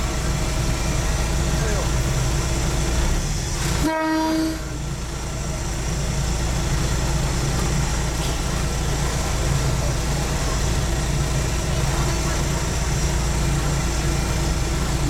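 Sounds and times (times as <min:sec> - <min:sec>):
diesel engine running: 0:00.0 - 0:15.0
train horn toot: 0:03.8 - 0:04.8.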